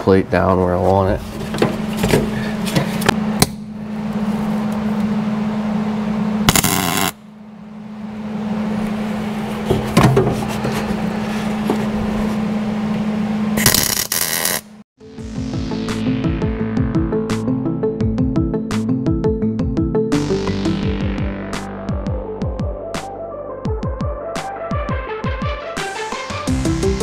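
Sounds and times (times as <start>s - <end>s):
welding arc crackling: 6.5s - 7.2s, 13.6s - 14.8s.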